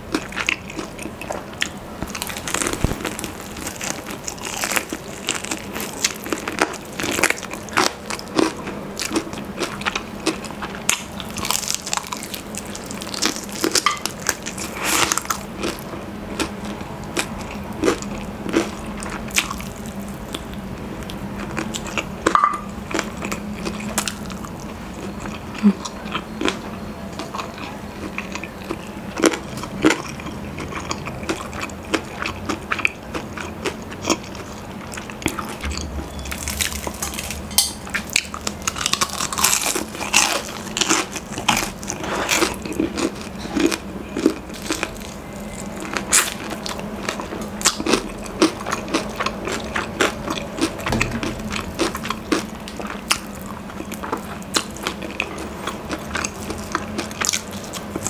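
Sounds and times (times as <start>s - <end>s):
crunching and chewing: 0.0s - 58.0s
breading crackling: 0.1s - 16.6s.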